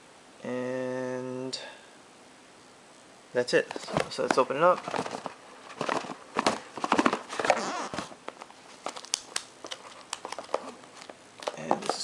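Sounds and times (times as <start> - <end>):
cardboard and paper rustling: 3.7 - 12.0.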